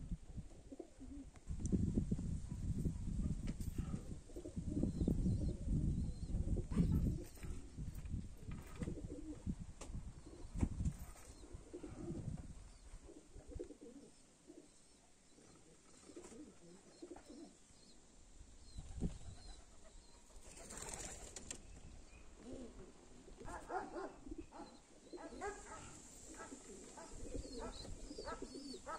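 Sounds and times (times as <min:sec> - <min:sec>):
pigeons cooing: 0:00.6 - 0:01.4, 0:03.6 - 0:07.8, 0:08.8 - 0:09.5, 0:11.2 - 0:17.6, 0:22.3 - 0:28.9.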